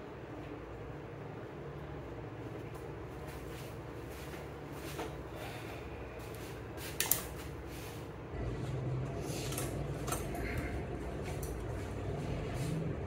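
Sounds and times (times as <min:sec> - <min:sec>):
low steady hum: 0:00.0 - 0:13.0
barber tools clicking and clinking: 0:09.4 - 0:11.7.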